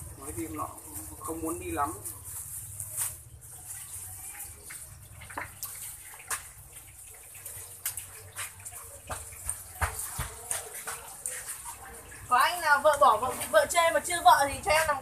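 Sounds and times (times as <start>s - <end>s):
plastic bag rustling: 0.6s - 4.6s.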